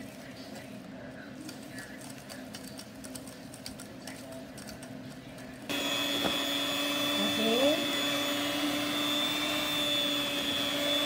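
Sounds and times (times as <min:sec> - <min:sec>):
electric hand mixer whining: 0:05.7 - 0:11.0.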